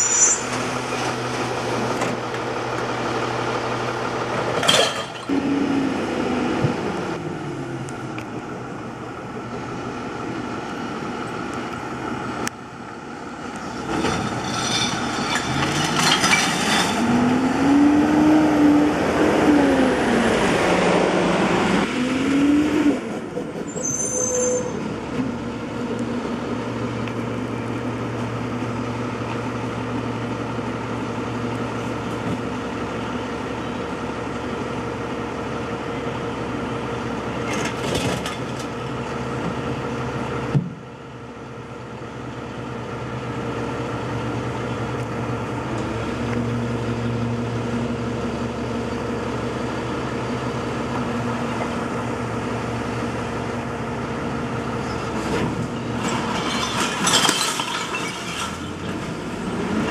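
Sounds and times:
diesel engine revving and idling: 0.4s - 4.7s, 5.3s - 24.0s, 41.6s - 56.2s, 58.8s - 59.9s.

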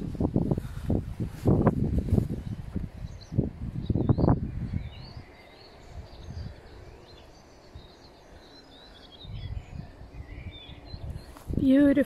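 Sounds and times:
footsteps in grass: 0.0s - 3.0s, 11.2s - 11.8s
small birds chirping: 0.0s - 12.0s.

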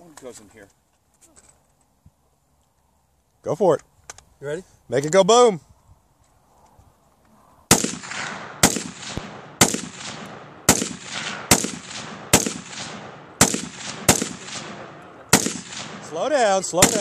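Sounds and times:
faint gunshot crack: 7.7s - 16.1s, 16.8s - 17.0s
rifle shots with echo: 7.7s - 17.0s.

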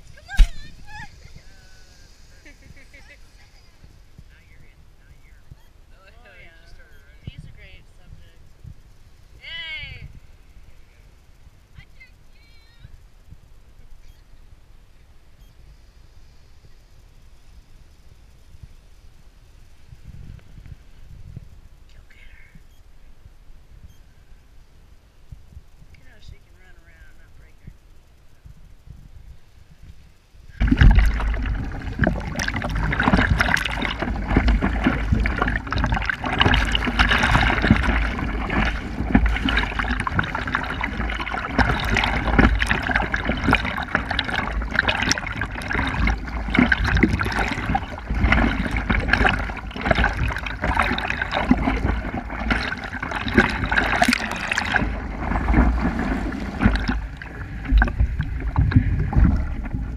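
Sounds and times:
water splashing from paddling: 30.5s - 59.9s.

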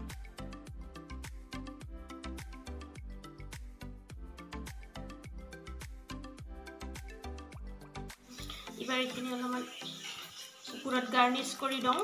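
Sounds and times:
music with quick steady beat: 0.0s - 8.8s.

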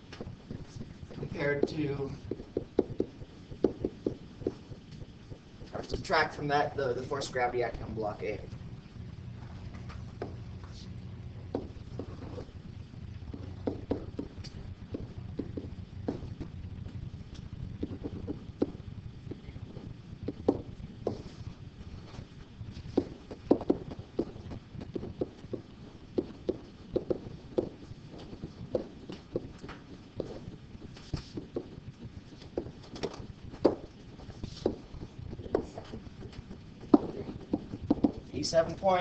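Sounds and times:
low room hum: 0.0s - 39.0s.

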